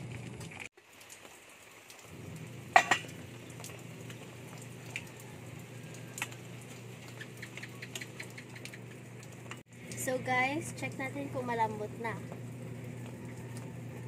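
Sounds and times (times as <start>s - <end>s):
steady low hum: 2.1s - 14.0s
ladle clanging on pot: 2.8s - 3.1s.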